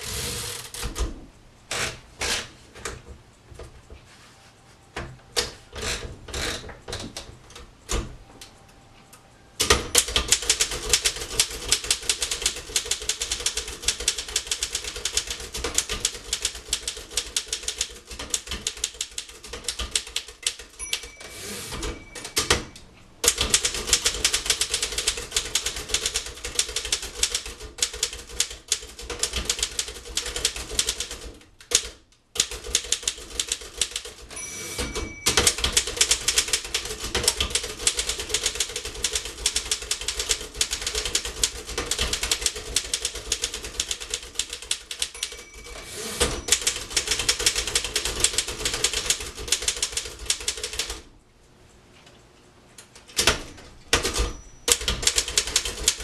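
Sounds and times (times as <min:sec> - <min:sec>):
typewriter margin bell: 0:09.6 - 0:31.3, 0:32.4 - 0:50.9, 0:53.9 - 0:56.0
typewriter clicks feeding paper: 0:09.6 - 0:51.0, 0:53.1 - 0:56.0
typewriter typing: 0:09.6 - 0:51.1, 0:53.1 - 0:56.0.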